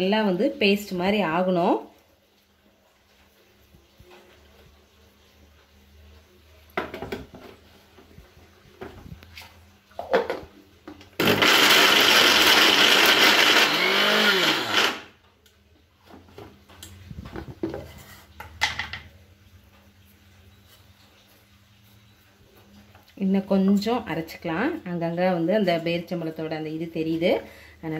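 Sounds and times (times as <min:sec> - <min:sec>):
mixer grinder running: 0:11.2 - 0:15.1.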